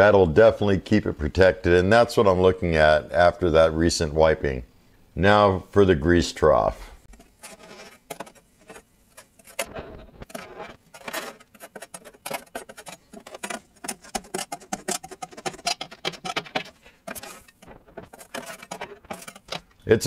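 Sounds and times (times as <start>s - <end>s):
tool scraping metal trough: 7.0s - 20.0s.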